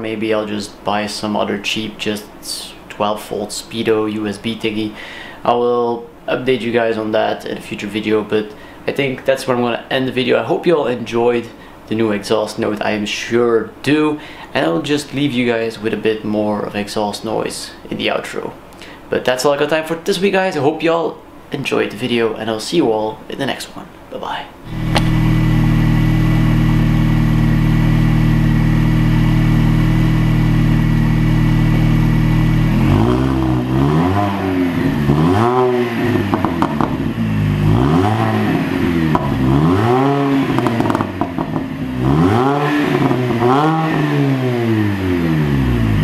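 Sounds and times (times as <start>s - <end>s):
car engine idling and revving: 24.7s - 46.0s.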